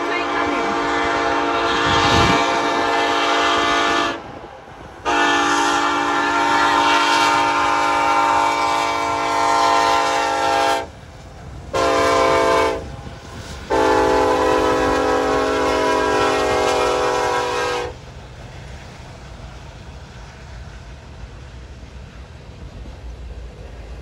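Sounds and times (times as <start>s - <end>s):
locomotive air horn blasts: 0.0s - 4.4s, 5.0s - 10.9s, 11.7s - 13.0s, 13.7s - 18.0s.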